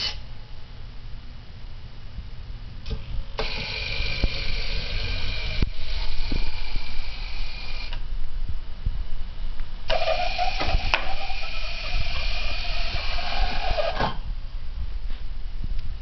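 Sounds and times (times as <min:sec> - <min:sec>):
electric motors whining: 0:03.4 - 0:08.0, 0:09.9 - 0:14.0.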